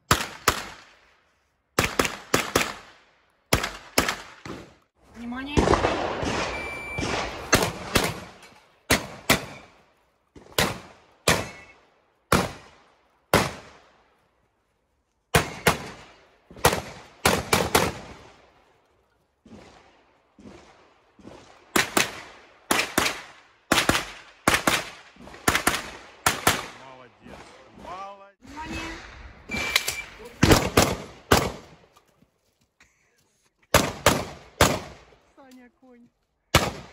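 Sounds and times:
gunshots with echo: 5.4s - 9.8s, 10.4s - 13.8s, 15.3s - 18.4s, 30.4s - 31.8s.

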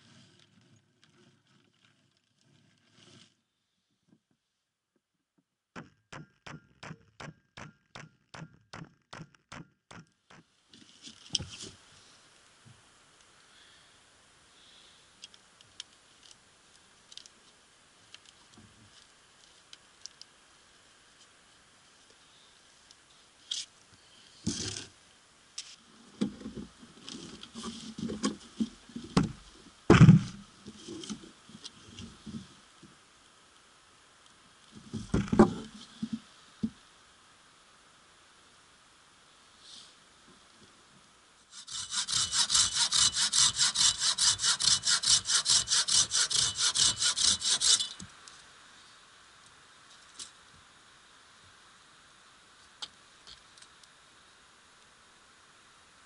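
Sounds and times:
sharp knock: 5.8s - 10.1s
rustling hiss: 10.2s - 56.0s.

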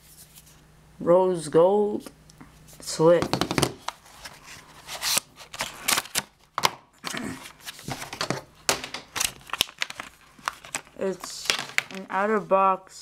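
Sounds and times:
plastic packaging crackling: 3.8s - 12.4s.

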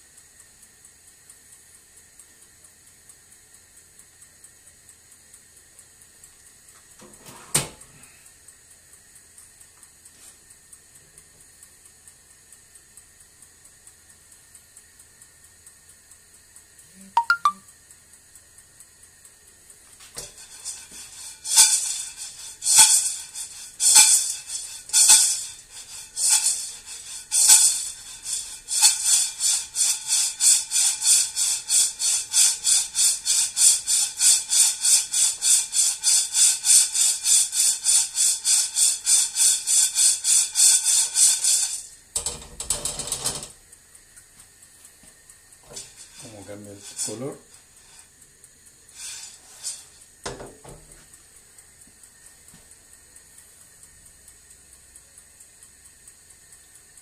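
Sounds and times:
coffee beans rattling in a pan: 20.0s - 57.0s.

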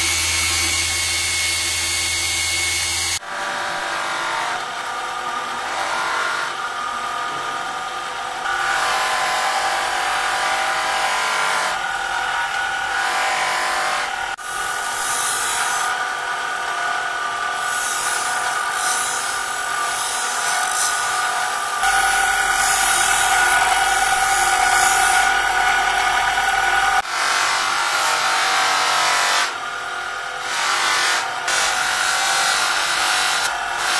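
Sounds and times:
bench grinder whine: 0.0s - 3.8s, 4.4s - 33.9s
knife blade grinding on wheel: 17.6s - 27.1s.

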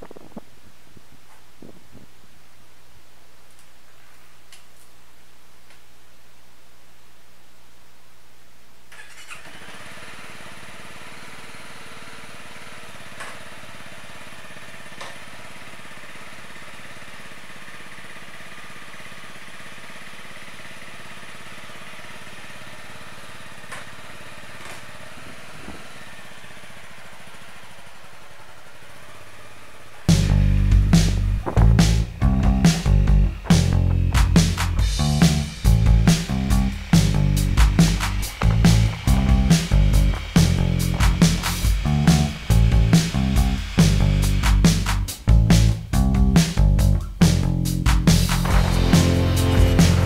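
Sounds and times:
motorcycle engine starting and idling: 8.9s - 50.0s
music: 30.1s - 50.0s.

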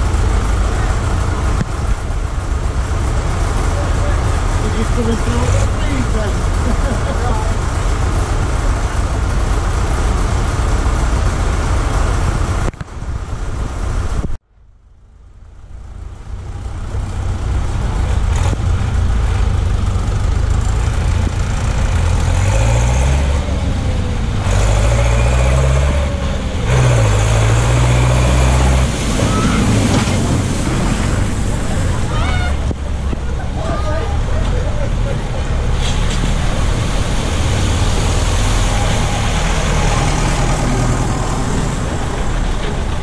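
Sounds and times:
tractor diesel engine revving: 0.0s - 14.1s, 16.1s - 43.0s
steady rush of noise: 0.0s - 43.0s
water splashing: 22.9s - 43.0s.

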